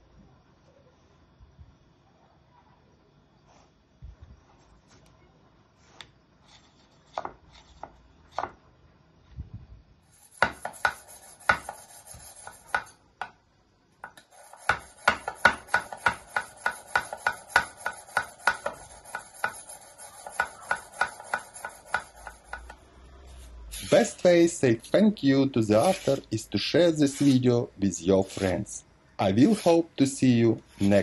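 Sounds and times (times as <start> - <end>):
sharpening stone scraping knife: 10.1 - 12.9, 14.2 - 22.7, 23.3 - 25.1, 25.7 - 29.9, 30.7 - 31.0.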